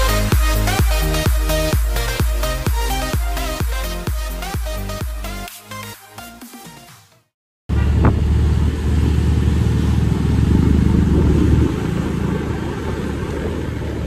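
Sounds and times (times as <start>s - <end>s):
intro music: 0.0s - 7.1s
motorcycle engine and road noise: 7.7s - 14.0s.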